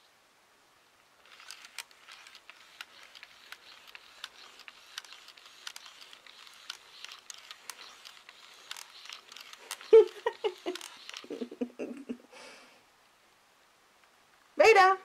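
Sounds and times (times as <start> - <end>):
handling clicks and rustles: 1.2 - 11.6.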